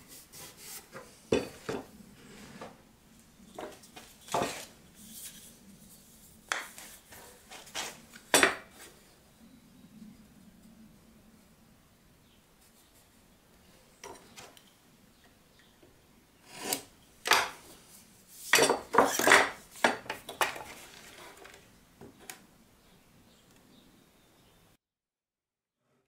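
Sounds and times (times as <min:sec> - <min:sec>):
tools clattering and clinking: 0:18.5 - 0:21.6.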